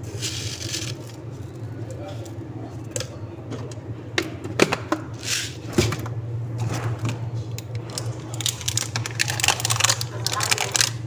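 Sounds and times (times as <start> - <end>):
steady low hum: 0.0 - 11.0
plastic cups clicking on wood: 7.9 - 11.0
plastic rustle: 7.9 - 11.0.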